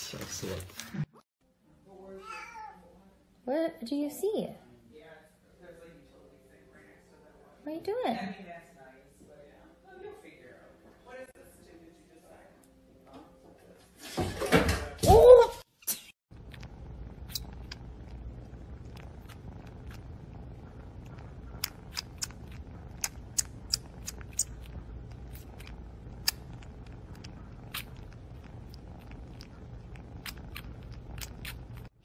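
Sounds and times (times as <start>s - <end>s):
kitten purring: 16.3s - 32.0s.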